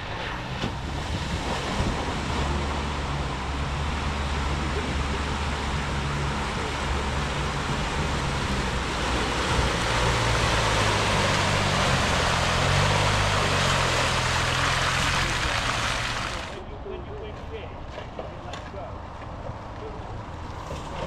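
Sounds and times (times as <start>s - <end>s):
car engine running: 0.0s - 16.6s
tyres splashing through mud: 0.0s - 16.6s, 20.2s - 21.0s.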